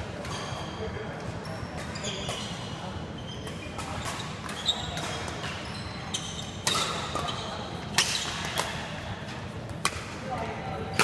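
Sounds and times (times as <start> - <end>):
shoes squeaking on court: 0.2 - 8.5
rackets striking shuttlecock: 6.5 - 7.3, 7.9 - 8.8, 9.7 - 10.2.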